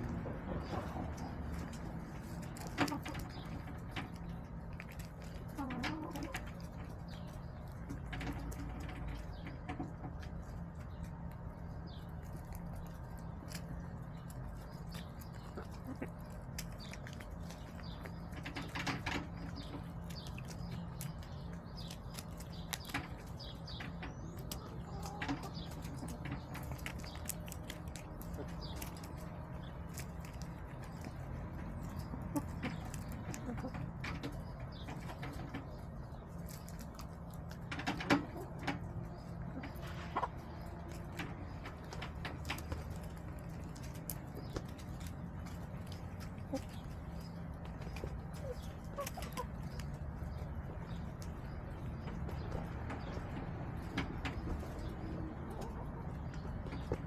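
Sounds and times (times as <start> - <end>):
beaks tapping on ground: 0.0 - 57.0
hens clucking: 0.0 - 57.0.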